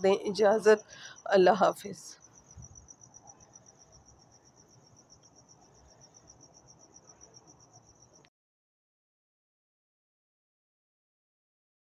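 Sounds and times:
cricket chirping: 0:00.0 - 0:08.3.

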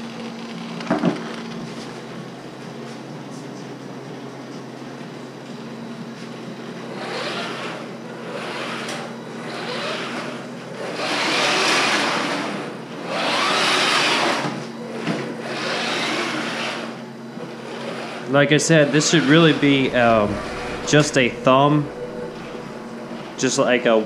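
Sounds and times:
rc car motors whirring: 0:06.9 - 0:17.0, 0:19.0 - 0:23.4
steady low hum: 0:19.2 - 0:24.0.

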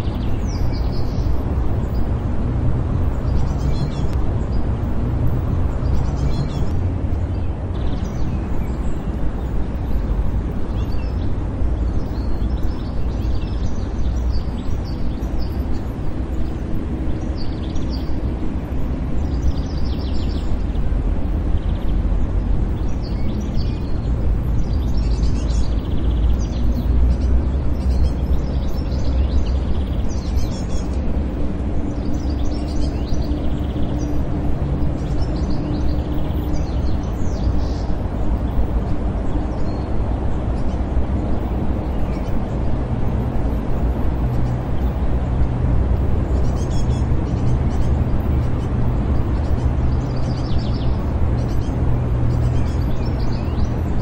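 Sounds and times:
distant traffic rumble: 0:00.0 - 0:54.0
small birds chirping: 0:00.0 - 0:54.0.

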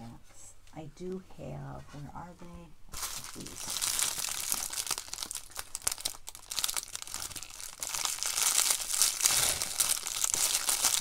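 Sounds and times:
plastic packaging crumpling: 0:02.9 - 0:11.0.

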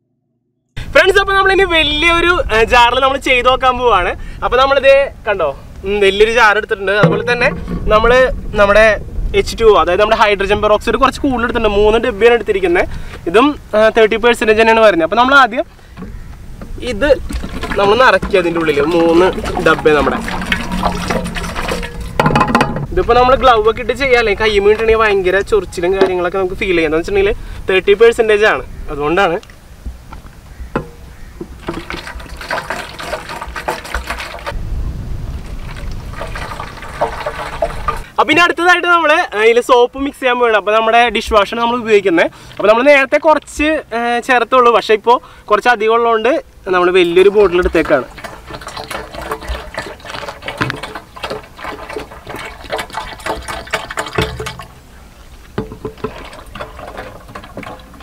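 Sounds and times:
small splashes and gurgles: 0:15.8 - 0:22.6, 0:47.7 - 0:54.9, 0:55.6 - 0:58.0
liquid pouring into plastic can: 0:17.2 - 0:22.4, 0:31.6 - 0:34.6, 0:35.6 - 0:38.1, 0:47.5 - 0:54.8, 0:55.6 - 0:58.0.

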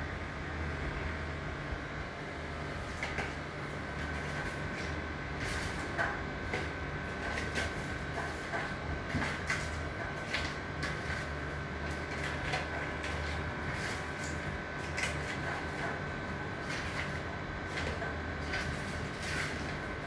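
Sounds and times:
steady background hum: 0:00.0 - 0:20.0
kitchen scraps clicking and rustling: 0:04.0 - 0:20.0.

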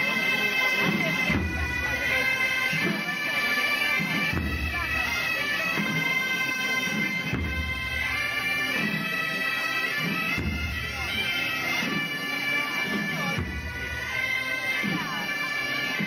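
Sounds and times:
bagpipe tune over drone: 0:00.0 - 0:16.0.

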